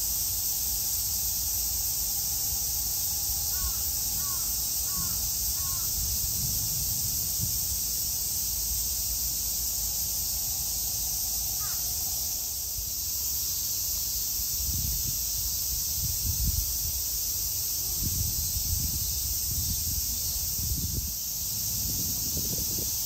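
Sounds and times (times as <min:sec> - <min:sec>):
steady high hiss: 0:00.0 - 0:23.0
crow cawing: 0:03.5 - 0:05.9, 0:11.6 - 0:11.9.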